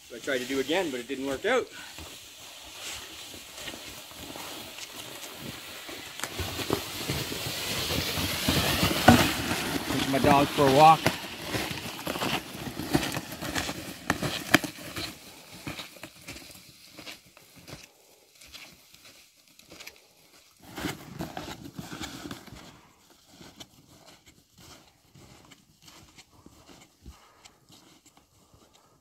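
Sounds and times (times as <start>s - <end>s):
tarp dragged over snow: 0.0s - 16.9s
snowshoe footsteps crunching snow: 0.0s - 29.0s.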